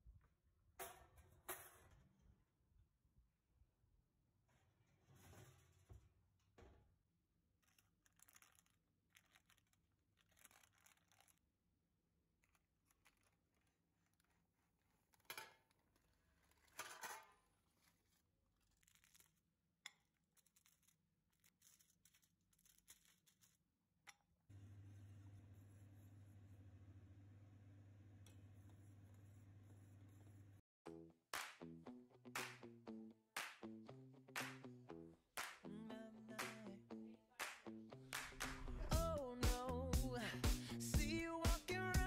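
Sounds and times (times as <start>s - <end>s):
paper rustling: 7.6s - 11.5s, 12.4s - 19.4s, 20.4s - 23.6s.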